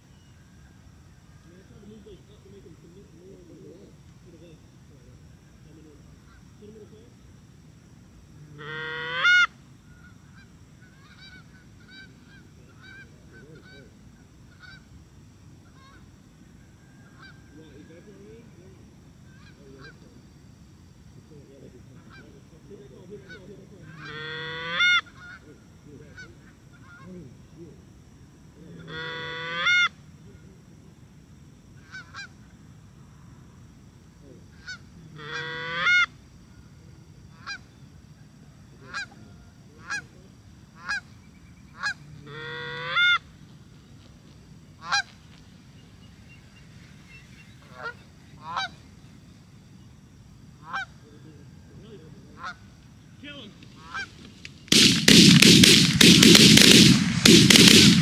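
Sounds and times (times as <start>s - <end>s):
goose honking: 8.6s - 13.9s, 23.2s - 25.4s, 28.8s - 30.0s, 34.6s - 36.1s, 41.8s - 43.3s, 44.8s - 45.1s, 47.6s - 48.8s, 50.6s - 51.0s, 52.4s - 52.6s, 53.8s - 54.2s.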